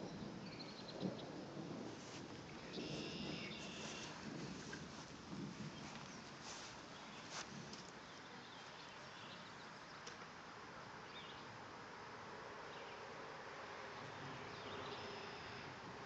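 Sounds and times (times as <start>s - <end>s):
outdoor background hiss: 0.0s - 16.0s.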